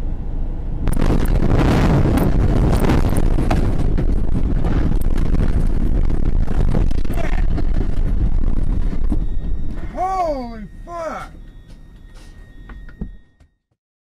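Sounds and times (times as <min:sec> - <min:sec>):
vehicle rumble and rattle: 0:00.0 - 0:13.6
wind buffeting microphone: 0:00.8 - 0:10.0.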